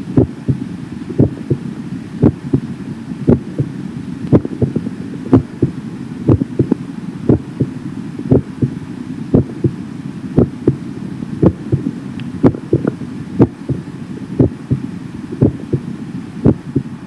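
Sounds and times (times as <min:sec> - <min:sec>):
steady low rumble: 0:00.0 - 0:17.0
heartbeat thumps: 0:00.1 - 0:01.6, 0:02.2 - 0:02.7, 0:03.3 - 0:03.7, 0:04.3 - 0:09.8, 0:10.4 - 0:10.8, 0:11.4 - 0:15.9, 0:16.5 - 0:16.9.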